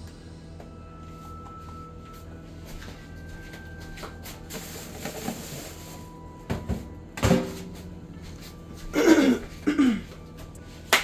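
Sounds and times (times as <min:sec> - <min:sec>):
creaking scrape: 0:04.4 - 0:06.1.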